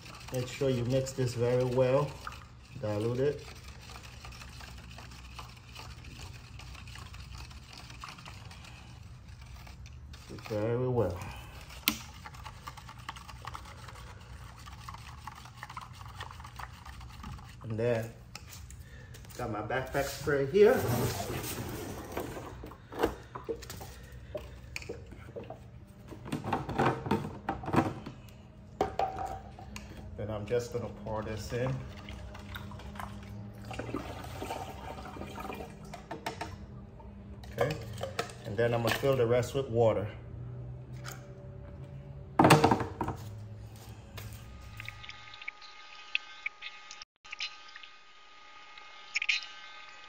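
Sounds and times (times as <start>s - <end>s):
spoon scraping plastic cup: 0.0s - 18.6s
liquid swishing: 0.0s - 18.7s, 30.2s - 36.1s
low steady hum: 0.0s - 50.0s.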